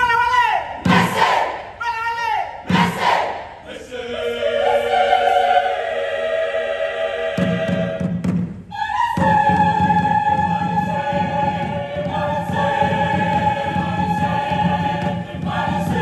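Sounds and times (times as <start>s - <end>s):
mixed choir singing: 0.8s - 1.7s, 2.6s - 16.0s
low beats: 4.5s - 16.0s.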